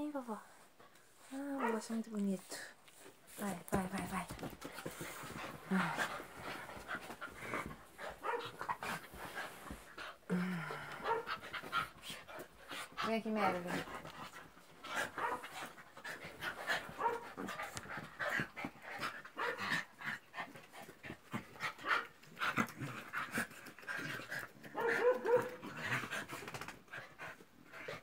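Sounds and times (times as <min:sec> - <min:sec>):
dogs scuffling on a bed: 0:02.9 - 0:10.2, 0:11.0 - 0:19.6
dogs panting: 0:02.9 - 0:28.0.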